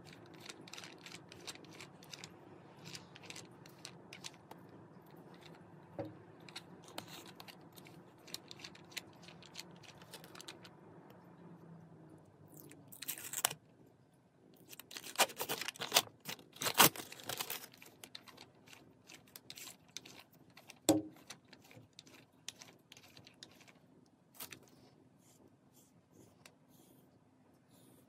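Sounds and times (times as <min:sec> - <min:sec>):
lint roller rustling and ticking: 0:00.0 - 0:10.8, 0:14.7 - 0:24.9
sticky sheet peeling and tearing: 0:14.7 - 0:18.2.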